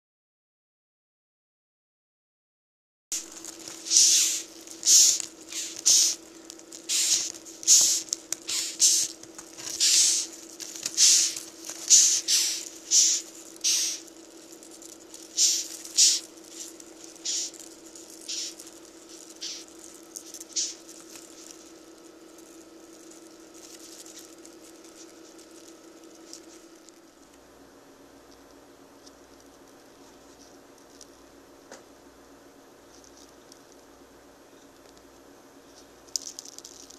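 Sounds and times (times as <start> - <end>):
steady low hum: 3.1 - 36.9
beetles hissing: 3.2 - 26.6.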